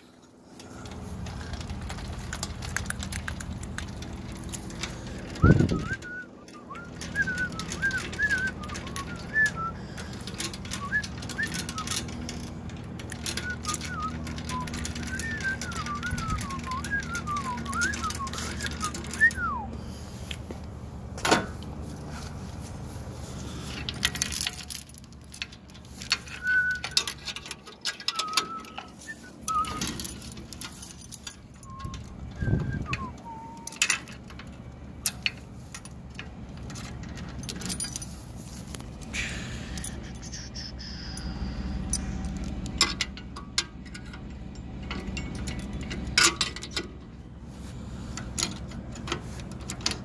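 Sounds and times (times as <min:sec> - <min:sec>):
chains rattling: 0:00.5 - 0:20.2, 0:22.4 - 0:50.0
person whistling: 0:05.4 - 0:09.8, 0:10.8 - 0:11.9, 0:13.4 - 0:19.7, 0:26.3 - 0:27.1, 0:28.1 - 0:30.0, 0:31.6 - 0:33.8, 0:39.3 - 0:41.7
metal clanks: 0:23.2 - 0:40.4, 0:41.2 - 0:50.0.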